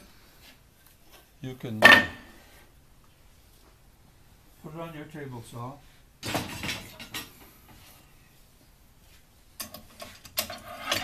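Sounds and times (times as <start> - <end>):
knocks and clatter: 6.2 - 7.3.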